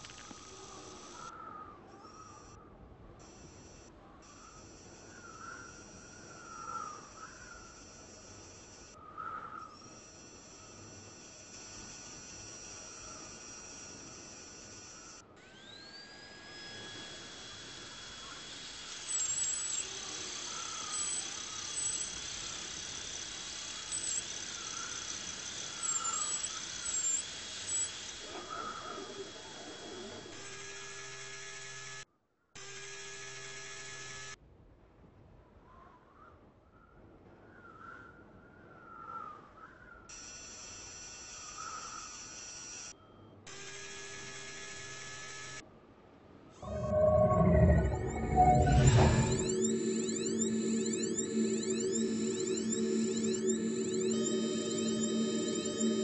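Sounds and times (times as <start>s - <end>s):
synthetic machine hiss with tones: 9.9s - 31.7s, 46.6s - 56.0s
high-pitched electronic whine: 15.1s - 31.9s, 46.6s - 56.0s
warbling electronic chirps: 46.6s - 56.0s.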